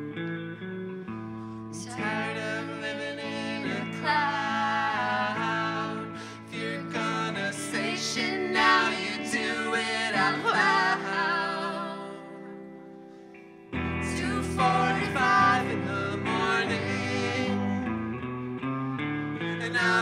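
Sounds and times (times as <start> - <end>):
electric guitar: 0.0 - 20.0
woman and man singing: 1.7 - 12.6, 14.0 - 17.9, 19.6 - 20.0.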